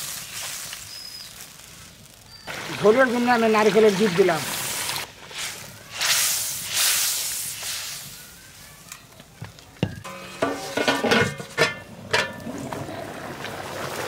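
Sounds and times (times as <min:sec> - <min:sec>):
fish curry sizzling in pan: 0:00.0 - 0:08.9.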